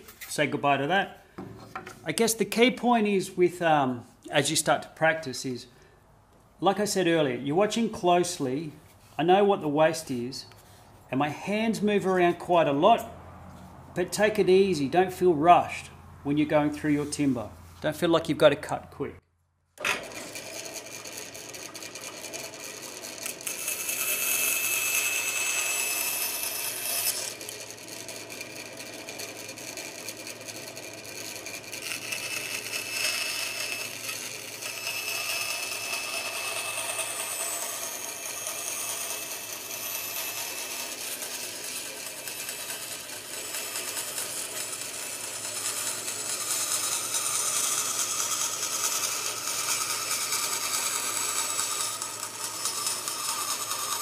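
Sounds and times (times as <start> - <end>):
bandsaw blade hum: 19.8 - 54.0
saw cutting through wood: 19.9 - 54.0.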